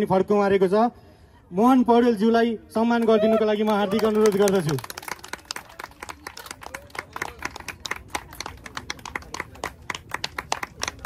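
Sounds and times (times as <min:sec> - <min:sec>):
scattered applause: 0:03.0 - 0:11.0.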